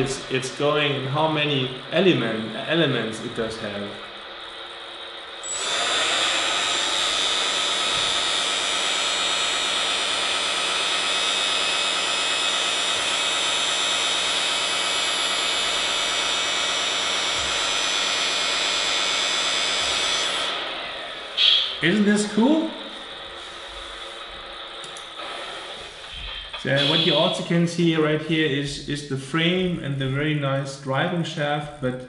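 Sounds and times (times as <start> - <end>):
hydraulic pump whining: 0.0 - 28.2.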